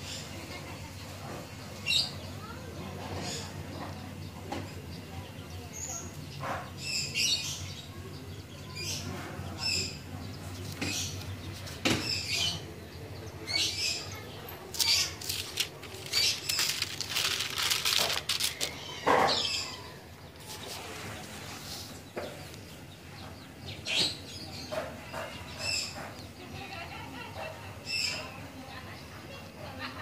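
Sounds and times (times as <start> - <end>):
small birds chirping: 0.0 - 30.0
album page rustling: 14.7 - 18.8.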